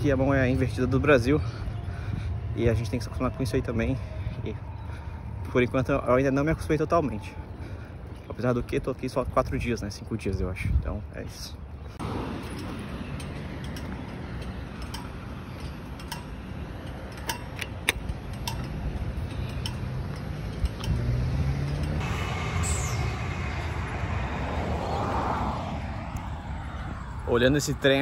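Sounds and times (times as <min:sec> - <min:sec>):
street noise: 0:00.0 - 0:28.0
electric train passing: 0:20.1 - 0:27.4.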